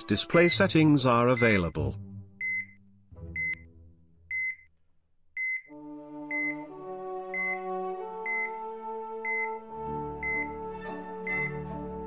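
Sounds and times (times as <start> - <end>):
soft background music chords: 5.7 - 12.0.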